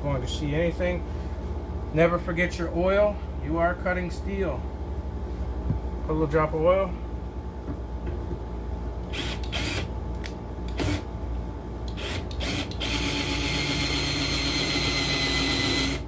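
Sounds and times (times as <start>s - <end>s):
cordless drill boring into steel: 9.1s - 9.9s, 12.0s - 16.0s.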